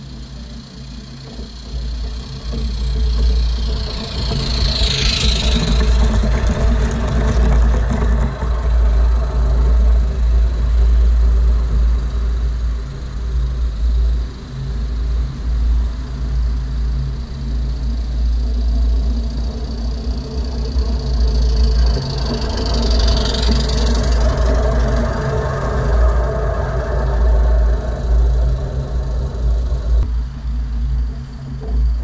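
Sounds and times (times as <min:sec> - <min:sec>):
model train wheels on rails: 0:00.0 - 0:12.7, 0:18.6 - 0:30.0
steady low rumble: 0:00.0 - 0:32.0.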